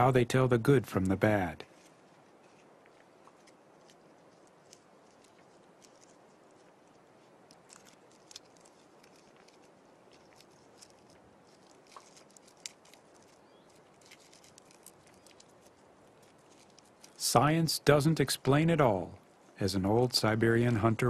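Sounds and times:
low hiss: 0:00.0 - 0:21.0
chipmunk chewing clicks and crackles: 0:00.5 - 0:17.3.

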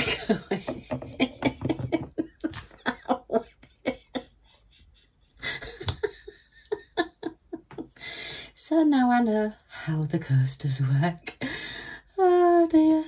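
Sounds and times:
woman laughing: 0:00.0 - 0:08.0.

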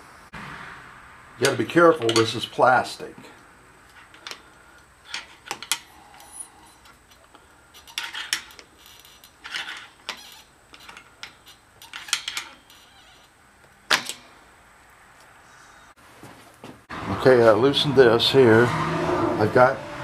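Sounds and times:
hand tools clicking and clinking: 0:01.4 - 0:02.6, 0:03.8 - 0:13.0.

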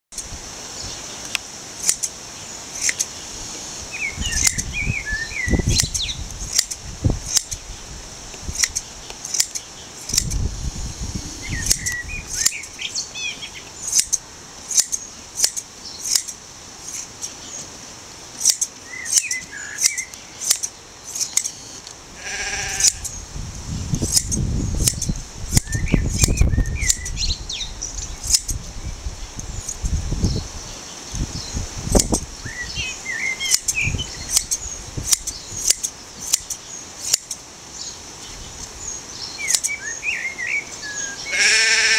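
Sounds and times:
birds chirping: 0:00.8 - 0:17.8, 0:18.4 - 0:41.9
shears snipping fleece: 0:01.8 - 0:02.2, 0:02.8 - 0:03.1, 0:05.7 - 0:07.6, 0:08.5 - 0:10.5, 0:11.6 - 0:12.8, 0:13.9 - 0:17.4, 0:18.4 - 0:21.9, 0:22.7 - 0:23.2, 0:24.0 - 0:27.1, 0:28.2 - 0:28.6, 0:29.6 - 0:29.9, 0:33.4 - 0:37.4
low rumbling: 0:10.1 - 0:12.5.

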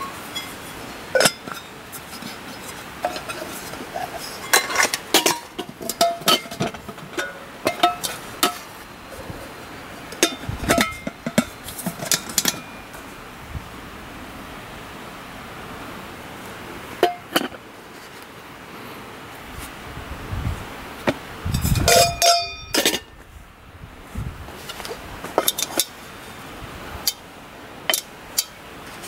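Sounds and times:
metal cookware clinking: 0:00.0 - 0:01.8, 0:03.0 - 0:08.7, 0:10.1 - 0:13.0, 0:21.6 - 0:23.1, 0:27.9 - 0:28.6.

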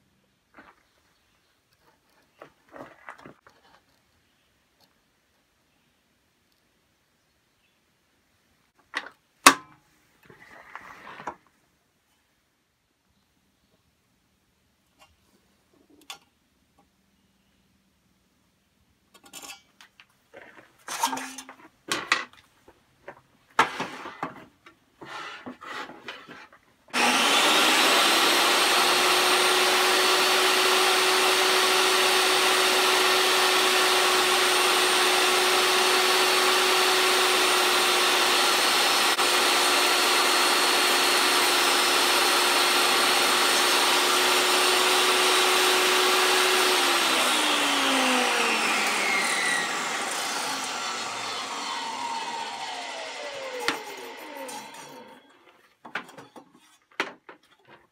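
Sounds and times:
table saw whining: 0:26.9 - 0:56.5.

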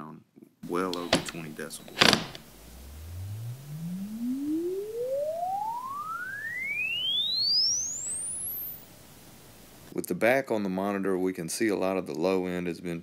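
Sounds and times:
sine tone sweeping upward: 0:02.5 - 0:08.9.

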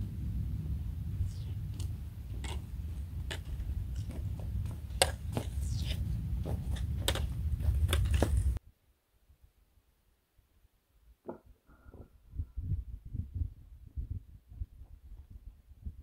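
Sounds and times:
wind rumble on microphone: 0:00.0 - 0:08.6, 0:11.8 - 0:16.0
footsteps and poles on rock: 0:01.8 - 0:08.6.

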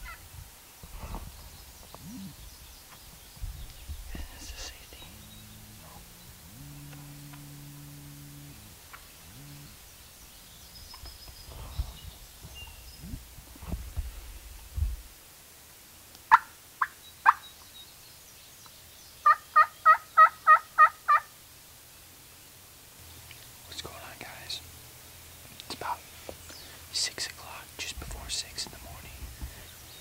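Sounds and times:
wild turkey clucks and yelps: 0:16.2 - 0:17.6, 0:19.2 - 0:21.3.

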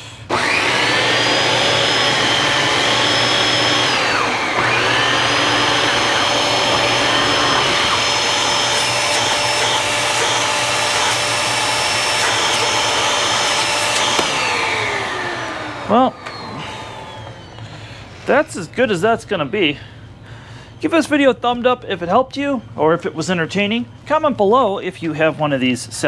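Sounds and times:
vacuum cleaner motor whining: 0:00.2 - 0:18.4.

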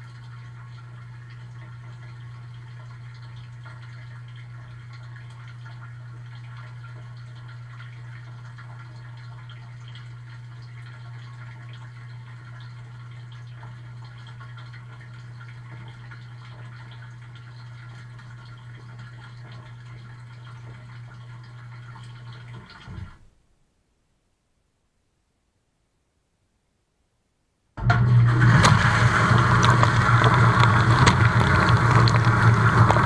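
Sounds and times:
dishwasher low hum: 0:27.8 - 0:33.0.

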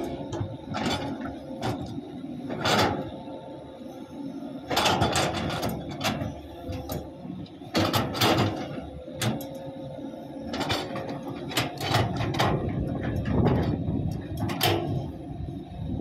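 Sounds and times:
diesel engines running: 0:00.0 - 0:16.0
machinery knocks and clanks: 0:07.7 - 0:09.5, 0:10.5 - 0:15.0.

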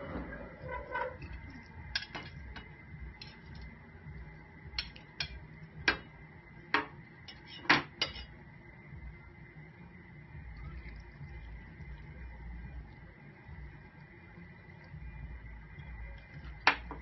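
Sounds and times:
metal utensil clinking against pan: 0:02.0 - 0:02.6, 0:06.8 - 0:08.3.

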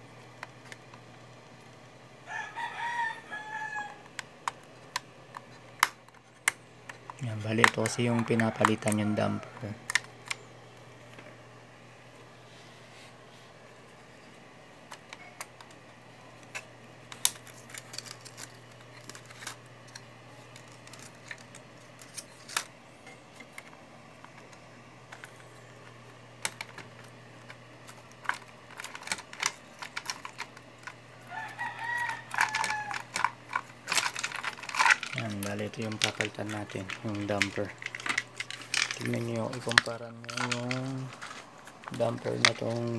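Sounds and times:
faint steady hum: 0:00.0 - 0:42.9
rooster crowing: 0:02.2 - 0:04.2, 0:07.8 - 0:09.8, 0:31.1 - 0:33.4
plastic parts clicking: 0:04.0 - 0:10.4, 0:16.4 - 0:22.7, 0:23.3 - 0:31.0, 0:31.8 - 0:42.9.

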